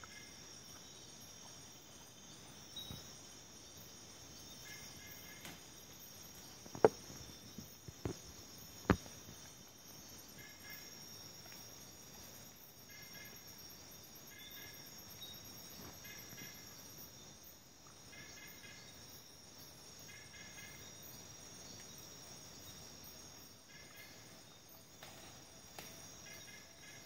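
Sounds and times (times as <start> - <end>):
insects trilling: 0.0 - 27.0.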